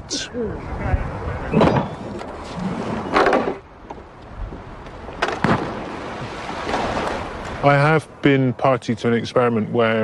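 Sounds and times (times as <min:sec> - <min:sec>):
wooden trebuchet knocks and thuds: 0:02.9 - 0:03.6, 0:05.2 - 0:05.9.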